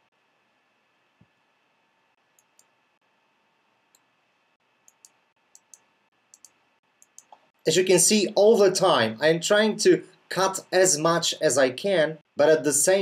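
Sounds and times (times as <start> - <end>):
computer control clicks: 4.9 - 7.4.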